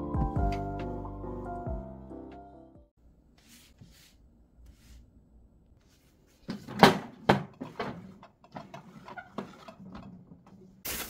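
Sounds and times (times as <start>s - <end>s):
kitchen items knocking and clattering: 6.4s - 10.8s.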